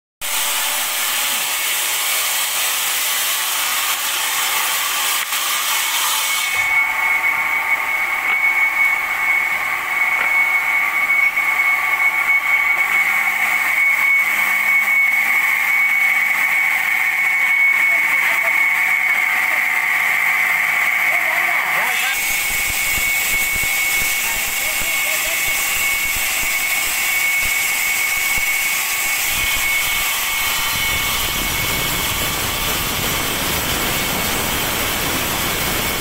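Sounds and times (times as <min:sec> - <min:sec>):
stone cutting machine running: 0:00.2 - 0:36.0
high whine: 0:06.5 - 0:20.1, 0:21.1 - 0:36.0.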